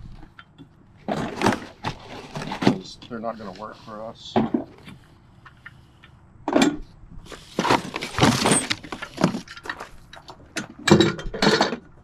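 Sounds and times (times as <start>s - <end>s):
cardboard scraping and rustling: 1.0s - 4.1s, 7.2s - 10.0s.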